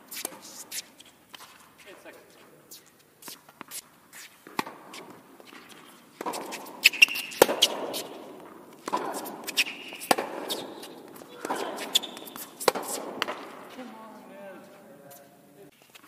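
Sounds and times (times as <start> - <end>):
racket hitting tennis ball: 0.1 - 1.6, 3.2 - 13.9
shoe squeaks: 0.1 - 8.3, 8.9 - 13.1
tennis ball bouncing: 3.2 - 13.8.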